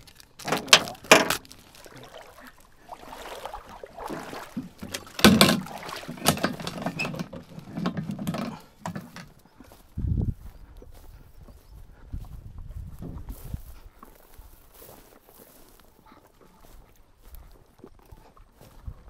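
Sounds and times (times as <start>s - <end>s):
plastic box and equipment clattering: 0.0s - 2.3s, 4.5s - 9.4s
rustling: 0.0s - 9.4s.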